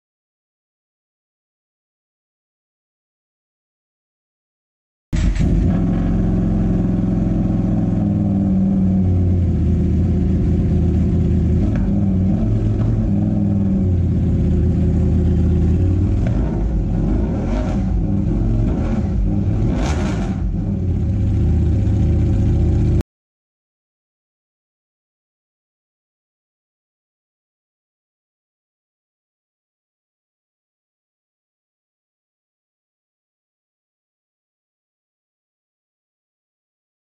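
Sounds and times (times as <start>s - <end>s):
motorcycle engine revving: 5.2s - 23.0s.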